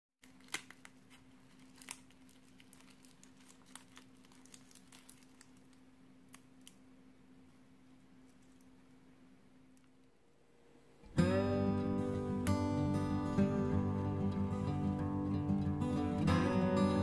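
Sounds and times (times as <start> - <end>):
charred skin crackling and tearing: 0.2 - 6.8
faint steady hum: 0.2 - 17.0.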